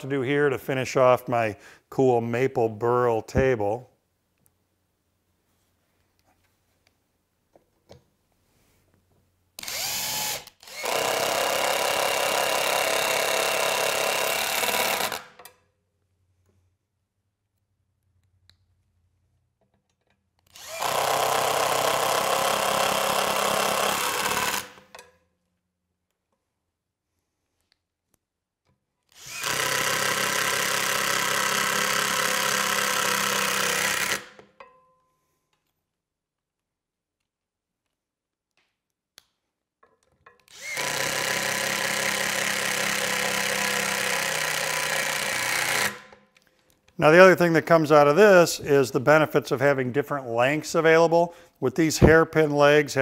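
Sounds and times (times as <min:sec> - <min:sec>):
impact driver running: 0:09.6 - 0:15.4, 0:20.5 - 0:24.9, 0:29.1 - 0:34.4, 0:40.5 - 0:46.2.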